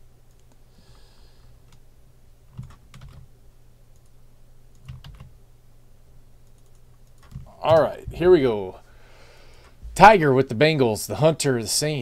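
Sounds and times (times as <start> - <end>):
faint low hum: 0.0 - 12.0
keyboard and mouse clicks: 2.5 - 3.3, 4.0 - 5.3, 6.4 - 8.2.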